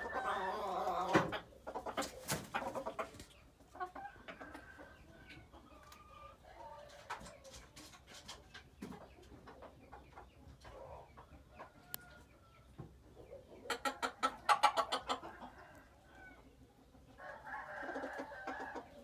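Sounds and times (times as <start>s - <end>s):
junglefowl clucking: 0.0s - 7.5s, 13.2s - 16.5s.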